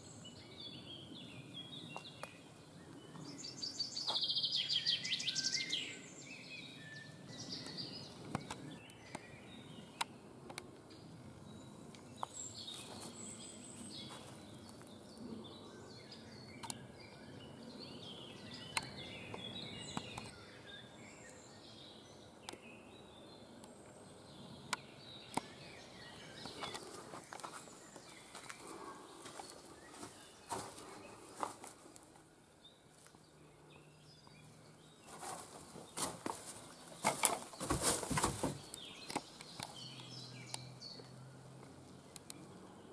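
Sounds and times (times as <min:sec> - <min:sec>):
bird chirps: 0:00.0 - 0:10.2, 0:33.4 - 0:41.2.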